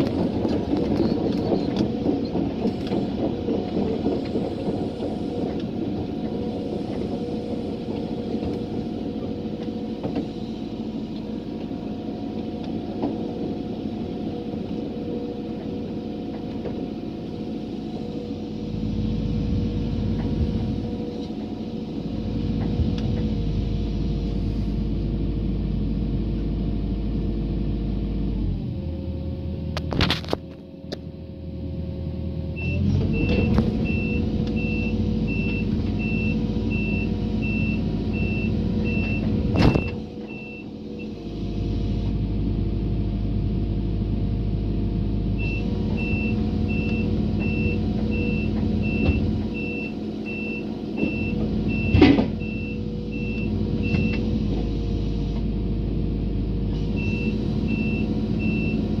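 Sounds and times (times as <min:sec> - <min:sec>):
diesel engine running: 0:00.0 - 0:59.0
travel alarm beeping: 0:32.6 - 0:41.2, 0:45.4 - 0:54.2, 0:57.0 - 0:58.9.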